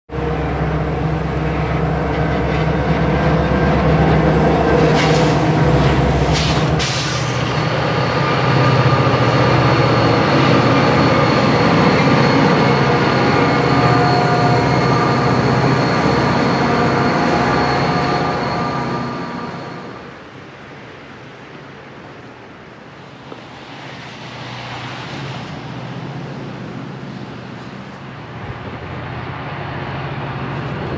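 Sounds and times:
diesel locomotives at full throttle: 0:00.1 - 0:30.9
rushes of noise: 0:00.2 - 0:20.2
steady high whine: 0:00.2 - 0:20.2.

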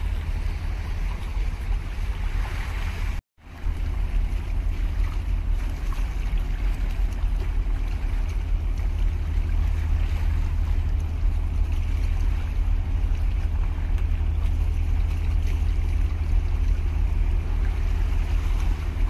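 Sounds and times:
sea washing against concrete: 0:00.0 - 0:19.0
wind buffeting microphone: 0:00.0 - 0:19.0.

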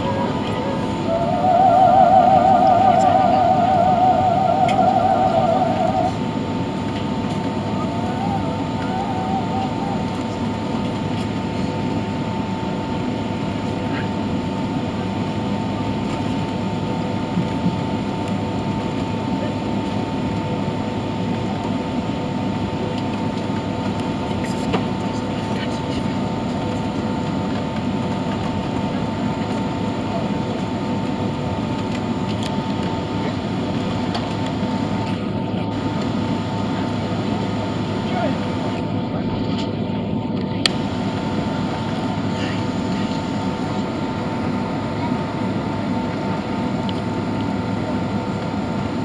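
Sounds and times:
jet engines rushing: 0:00.0 - 0:13.6
airplane cabin engine rumble: 0:00.0 - 0:49.0
steady whine: 0:00.0 - 0:49.0.

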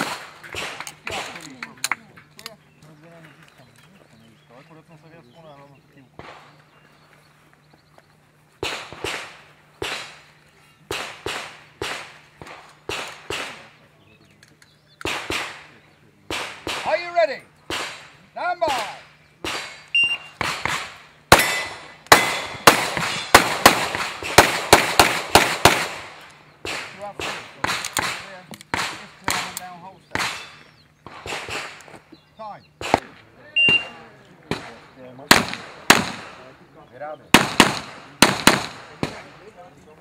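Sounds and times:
rapid loud pistol shots: 0:00.0 - 0:01.5, 0:06.2 - 0:06.6, 0:08.6 - 0:10.3, 0:10.9 - 0:13.8, 0:15.0 - 0:17.0, 0:17.6 - 0:31.9, 0:32.8 - 0:33.9, 0:34.5 - 0:36.5, 0:37.3 - 0:39.4
distant pistol shots: 0:00.0 - 0:01.6, 0:06.2 - 0:06.6, 0:08.6 - 0:13.8, 0:15.0 - 0:32.0, 0:32.8 - 0:36.5, 0:37.3 - 0:39.5
electronic shot timer beep: 0:20.0 - 0:20.3, 0:33.6 - 0:33.9.

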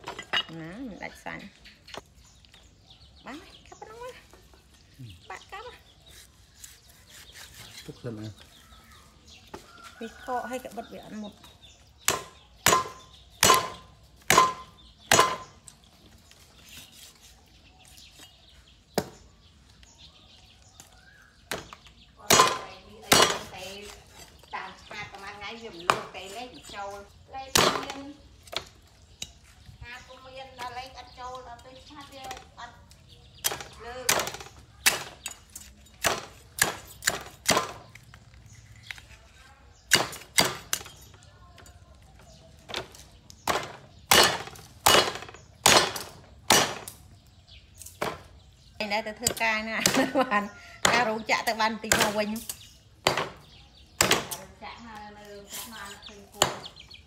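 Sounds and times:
cleaver chopping on wooden block: 0:12.0 - 0:15.6, 0:21.5 - 0:24.0, 0:36.0 - 0:38.0, 0:43.4 - 0:47.0, 0:54.0 - 0:54.4.

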